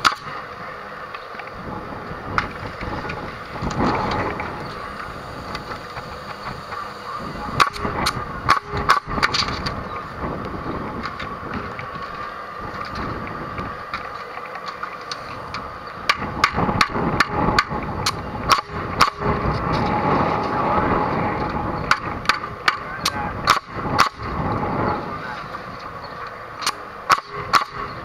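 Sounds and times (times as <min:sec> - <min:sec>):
mechanical hum: 0:00.0 - 0:28.0
nail gun shots: 0:23.5 - 0:24.2, 0:26.6 - 0:27.8.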